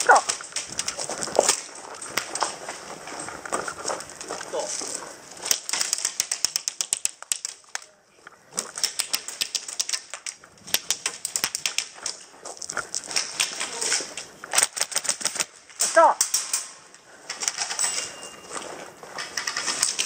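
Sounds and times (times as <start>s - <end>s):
airsoft guns firing full auto: 19.2s - 20.0s.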